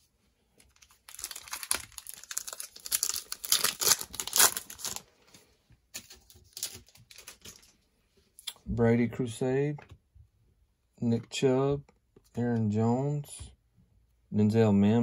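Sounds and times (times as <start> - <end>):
plastic wrapper crinkling: 0.6 - 7.8.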